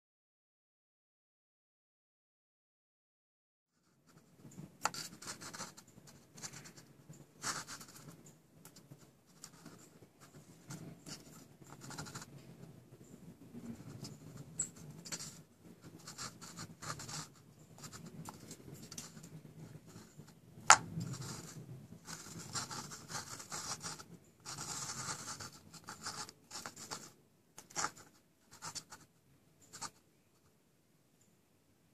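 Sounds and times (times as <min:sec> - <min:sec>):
plastic scraping on plastic: 0:13.5 - 0:28.9.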